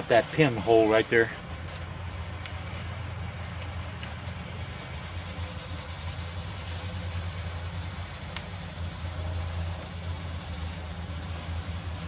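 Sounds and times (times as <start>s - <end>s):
low mechanical hum: 0.0s - 12.0s
steady high hiss: 0.0s - 12.0s.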